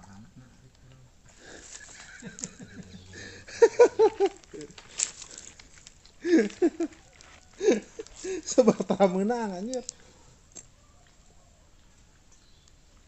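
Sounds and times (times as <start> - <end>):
men laughing: 1.3 - 5.6, 6.2 - 9.6.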